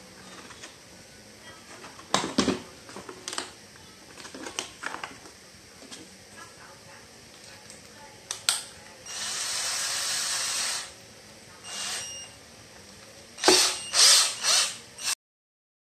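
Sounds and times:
cordless drill motor whirring: 9.1s - 11.0s, 11.7s - 12.4s, 13.4s - 15.2s.

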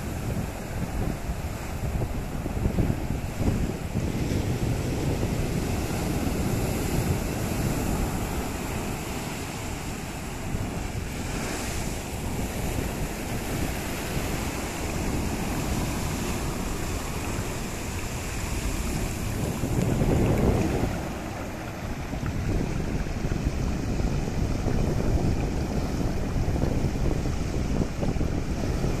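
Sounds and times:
wind buffeting microphone: 0.0s - 29.0s
surf breaking over rock: 14.5s - 25.8s.

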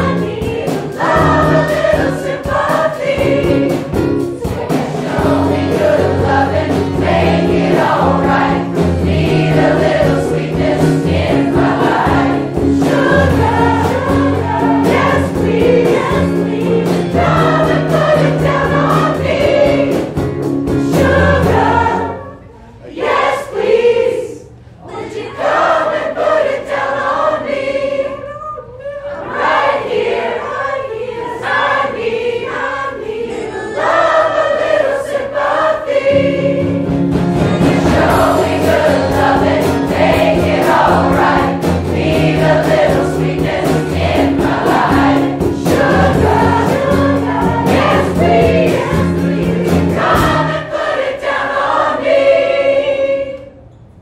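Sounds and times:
crowd singing a pop song: 0.0s - 20.1s, 20.8s - 22.2s, 37.4s - 53.4s
drums: 0.0s - 22.3s, 33.8s - 52.1s.

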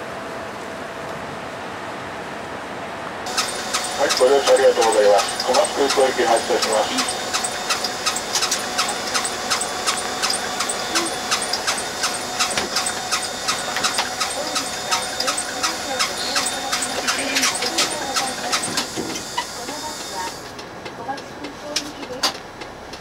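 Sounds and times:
bus engine whining: 0.0s - 23.0s
sharp regular ticking: 3.3s - 18.6s.

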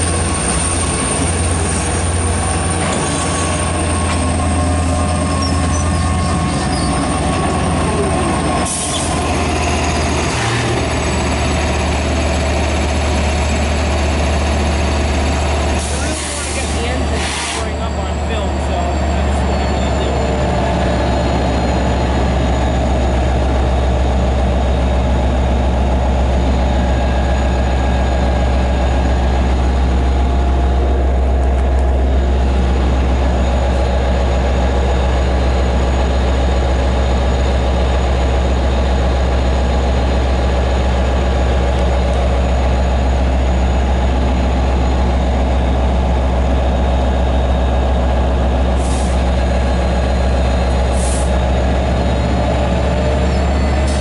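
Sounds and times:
diesel locomotive idling: 0.0s - 54.0s
air hiss: 16.1s - 17.6s.

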